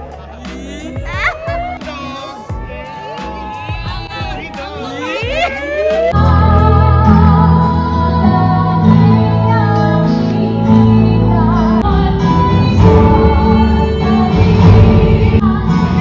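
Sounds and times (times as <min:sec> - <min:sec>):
woman singing: 0:05.2 - 0:16.0.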